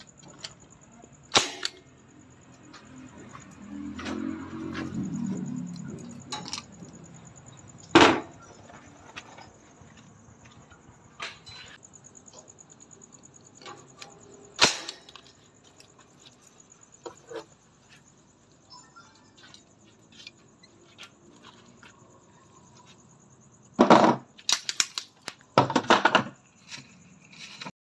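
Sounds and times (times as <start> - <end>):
nail gun firing metallic crack: 1.3 - 1.8, 14.6 - 15.2.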